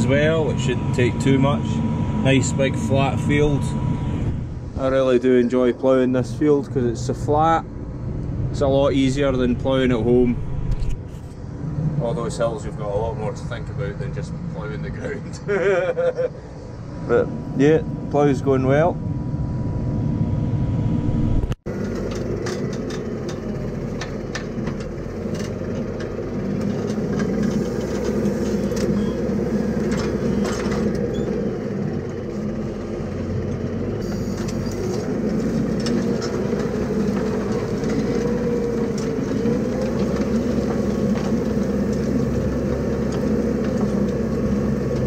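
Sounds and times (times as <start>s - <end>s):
tractor engine running: 0.0s - 15.2s, 16.4s - 45.0s
plough clicks and rattles: 21.7s - 45.0s.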